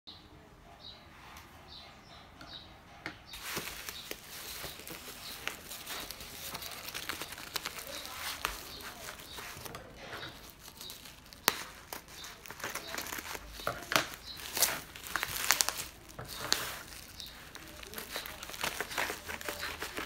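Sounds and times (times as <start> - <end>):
bubble wrap crinkling: 3.3 - 20.0
bubble wrap snap: 3.4 - 20.0.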